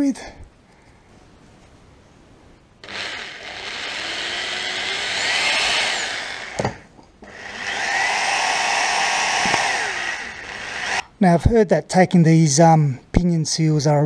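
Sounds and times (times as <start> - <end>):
drill click: 2.8 - 11.1
power drill whining into metal: 2.8 - 11.1.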